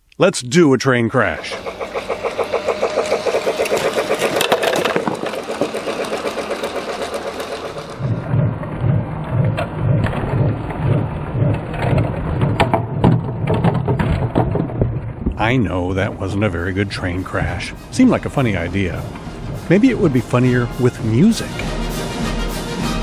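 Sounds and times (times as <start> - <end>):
toy train chugging sound effect: 1.2 - 8.2, 16.3 - 22.1.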